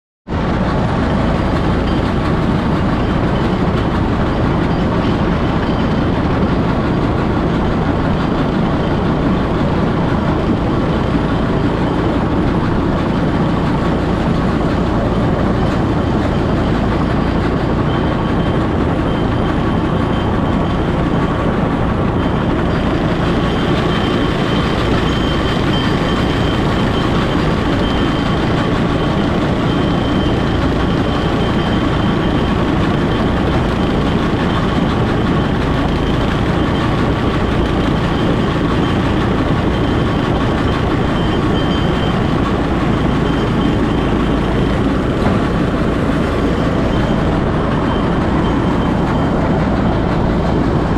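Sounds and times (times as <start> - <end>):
steel wheels rumbling on rails: 0.3 - 50.9.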